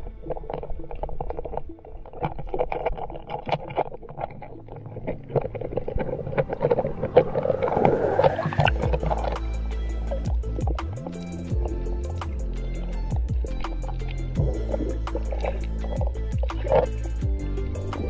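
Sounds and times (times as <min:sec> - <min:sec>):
rush of air bubbles: 0:00.0 - 0:12.2
underwater crackling clicks: 0:00.0 - 0:18.0
underwater water noise: 0:00.0 - 0:18.0.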